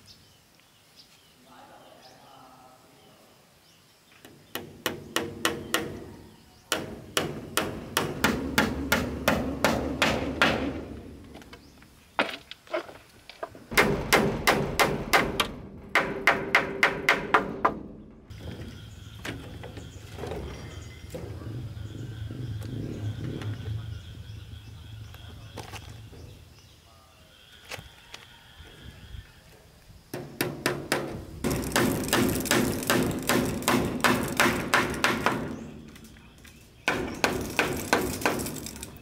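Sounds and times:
hammer driving nails into wood: 30.2s - 35.6s, 36.9s - 38.9s.

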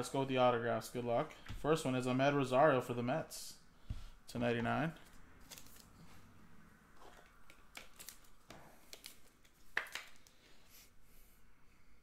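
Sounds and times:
trading cards clicking and rustling: 5.0s - 6.0s, 7.0s - 10.4s.

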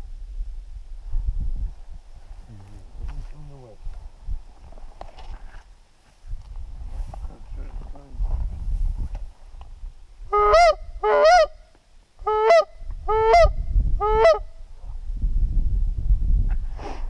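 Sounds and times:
goose honking: 10.3s - 11.6s, 12.3s - 14.4s.

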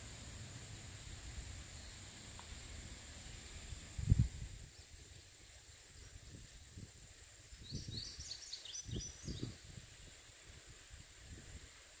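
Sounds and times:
steady high hiss: 0.0s - 12.0s
songbird chirping: 7.5s - 10.3s.

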